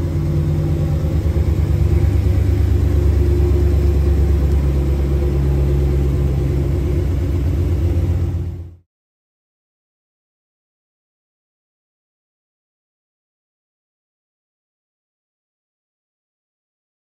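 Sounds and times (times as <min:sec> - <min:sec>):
pickup truck engine idling: 0:00.0 - 0:08.8.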